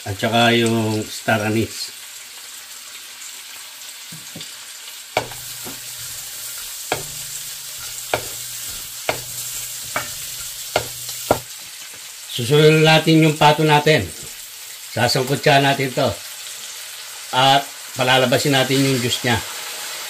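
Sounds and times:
onions sizzling in a wok: 0.0s - 20.0s
wooden spatula knocking pan: 5.2s - 11.5s.

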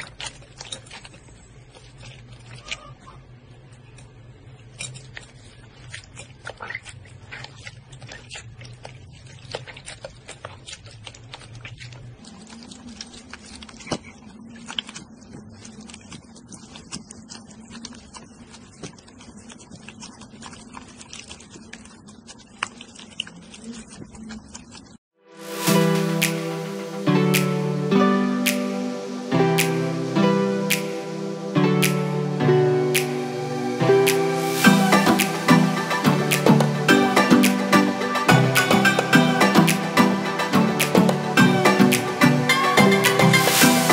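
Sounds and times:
slime squelching in water: 5.1s - 25.7s.

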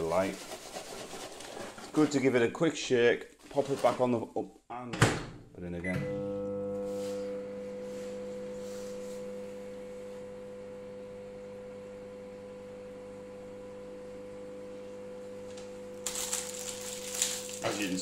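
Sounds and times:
microwave oven humming: 5.8s - 18.0s.

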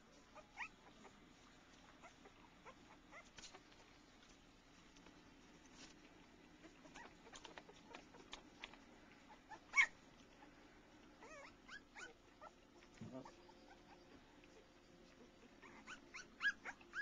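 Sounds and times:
puppies whimpering: 6.6s - 17.0s.

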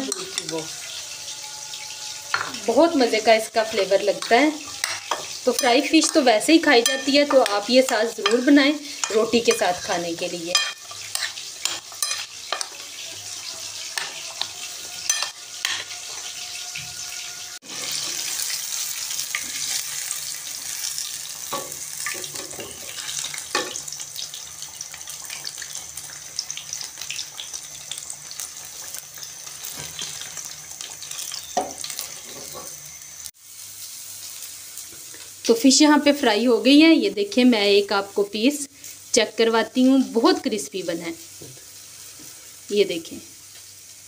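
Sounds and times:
fish sizzling in hot oil: 0.0s - 44.0s
metal skimmer clinking on wok: 4.2s - 7.6s
spoon clinking against glass bowl: 6.8s - 7.6s, 10.5s - 12.8s, 15.1s - 15.8s.

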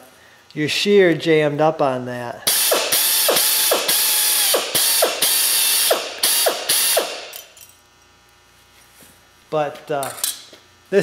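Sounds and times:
pneumatic shears cutting metal: 2.5s - 7.6s.

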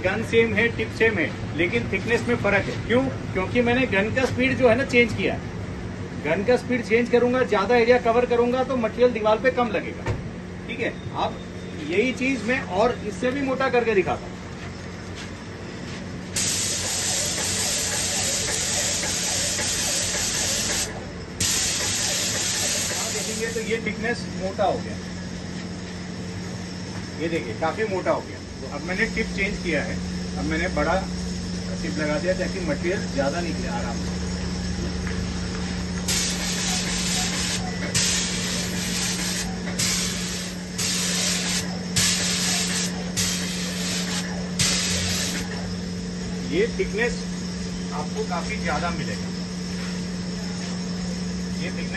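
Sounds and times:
steady low hum: 0.0s - 51.9s
spray gun hissing: 16.4s - 23.7s, 36.1s - 45.5s.

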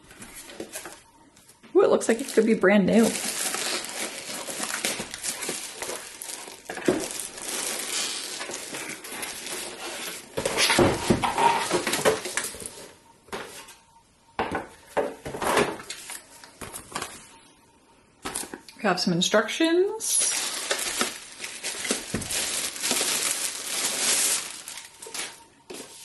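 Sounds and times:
plastic wrap crinkling: 0.1s - 13.0s, 20.1s - 26.0s.

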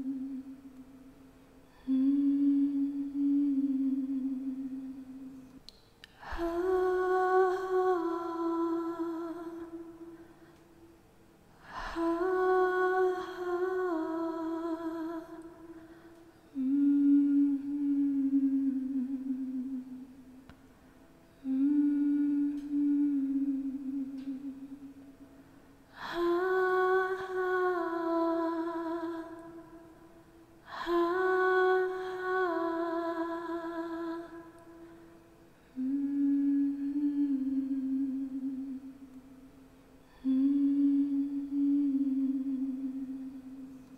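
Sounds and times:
woman humming: 0.0s - 0.8s, 1.7s - 5.5s, 16.5s - 20.4s, 21.4s - 24.9s, 35.8s - 39.2s, 40.1s - 43.8s
woman humming slow melody: 0.0s - 1.0s, 1.6s - 10.9s, 11.6s - 20.5s, 21.3s - 25.3s, 25.9s - 43.9s
woman breathing in: 15.7s - 16.5s.

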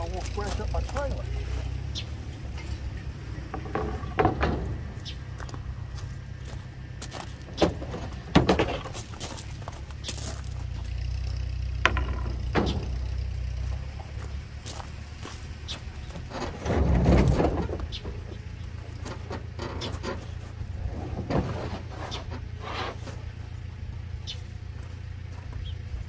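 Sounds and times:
boards knocking and scraping on metal: 3.4s - 5.0s, 7.4s - 9.3s, 11.8s - 13.2s, 16.1s - 23.2s.

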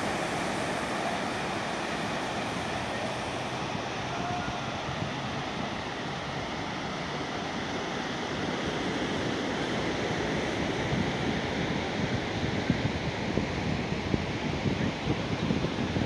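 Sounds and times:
ocean surf breaking: 0.0s - 12.1s
wind buffeting microphone: 0.0s - 16.0s.

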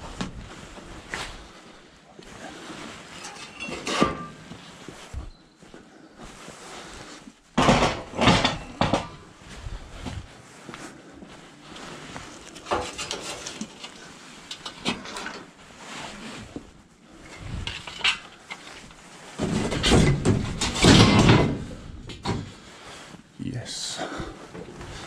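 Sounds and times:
steel shelving clattering on van floor: 3.2s - 4.4s, 7.6s - 9.3s, 19.4s - 22.5s
metallic knocks and clanks: 7.6s - 9.2s, 19.4s - 22.5s.

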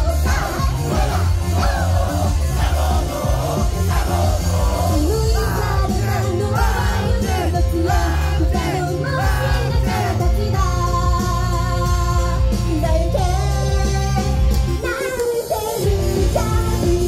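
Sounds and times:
pop song over sound system: 0.0s - 17.0s
woman singing: 4.9s - 17.0s.

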